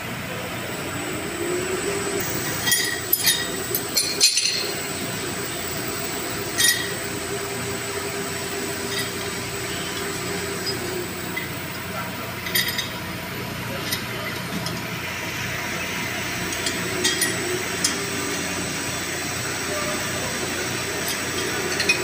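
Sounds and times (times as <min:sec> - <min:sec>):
machinery room hum: 0:00.0 - 0:22.0
wrench clinking on steel pipe: 0:02.5 - 0:04.7, 0:06.5 - 0:07.0, 0:21.0 - 0:22.0.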